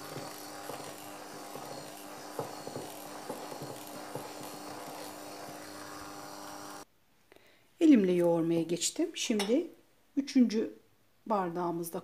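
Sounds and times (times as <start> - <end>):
electric hand mixer running: 0.0 - 6.9.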